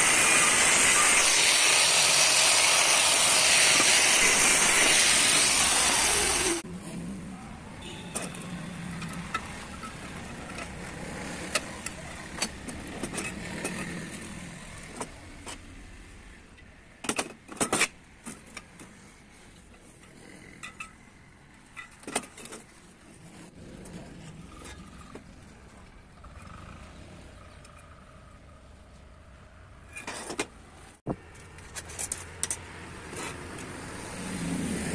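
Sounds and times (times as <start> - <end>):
angle grinder cutting steel: 0.0 - 6.6.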